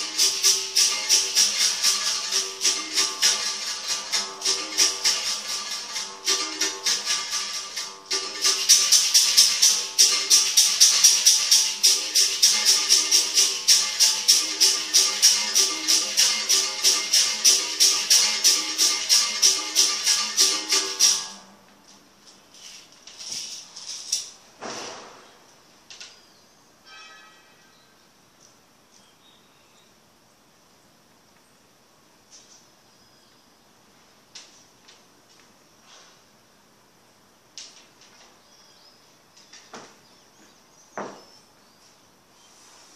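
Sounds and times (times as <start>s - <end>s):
basket rattle shaking: 0.0s - 21.3s, 22.6s - 24.4s
brief ringing tone: 26.8s - 27.8s.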